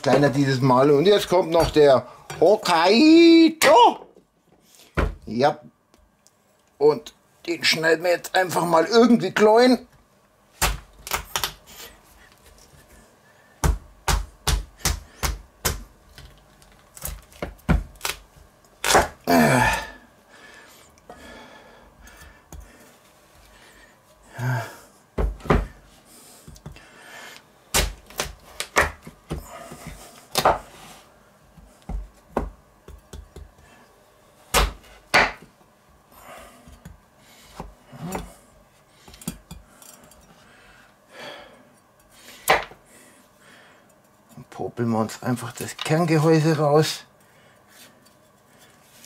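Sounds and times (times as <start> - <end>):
knife chopping on wooden board: 13.6 - 15.8, 27.8 - 30.6, 34.5 - 35.4, 42.5 - 42.8.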